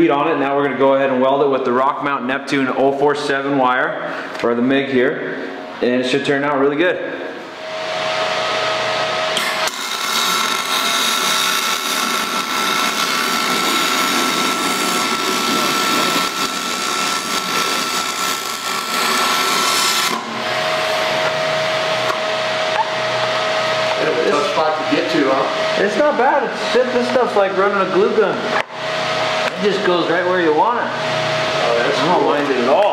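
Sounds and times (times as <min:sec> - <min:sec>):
welding arc crackling hiss: 0:09.4 - 0:23.8.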